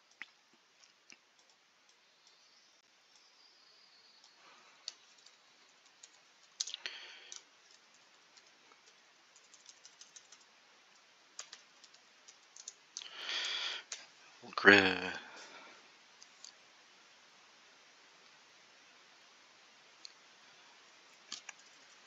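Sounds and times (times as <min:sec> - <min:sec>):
keyboard typing: 0:01.3 - 0:02.4, 0:04.2 - 0:14.0, 0:21.2 - 0:22.0.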